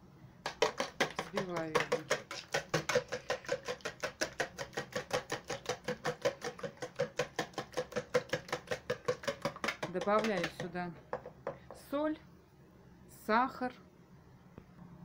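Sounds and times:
whisk clicking against bowl: 0.5s - 10.8s.

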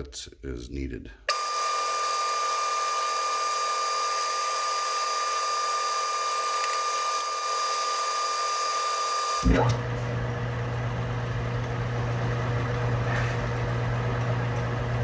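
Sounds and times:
lathe high-pitched whine: 1.3s - 9.8s.

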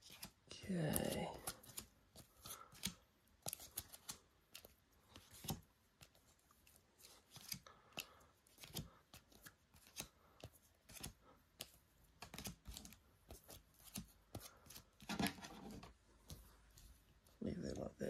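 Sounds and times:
plastic card sleeves clicking: 7.0s - 14.5s.

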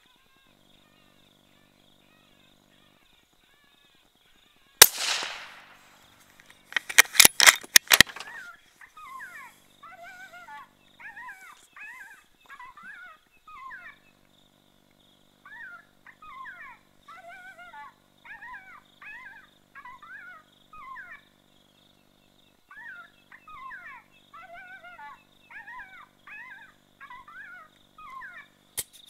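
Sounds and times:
rifle shot: 4.8s - 6.2s, 6.8s - 8.4s
sharp cracks: 4.8s - 8.5s
jackal yelping: 7.9s - 14.0s, 15.5s - 21.3s, 22.7s - 28.6s.

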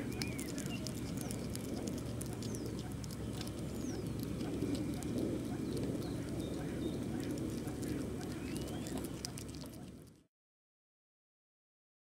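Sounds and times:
hedgehog chewing and smacking: 0.0s - 10.3s.

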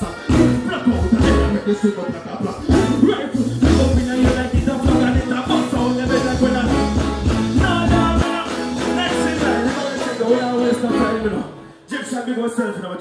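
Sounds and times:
steady drum beat: 0.0s - 1.7s, 2.5s - 11.1s
keyboard chords: 0.0s - 11.9s
band music over loudspeakers: 0.0s - 13.0s.

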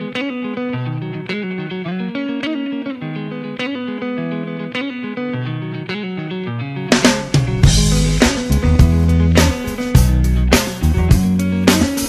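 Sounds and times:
electric guitar riff: 0.0s - 12.0s.

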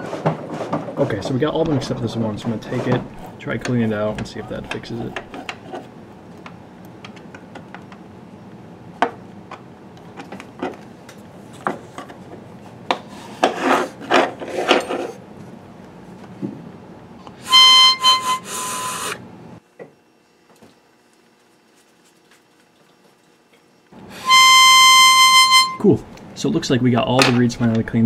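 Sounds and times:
high reedy organ note: 24.1s - 26.0s.

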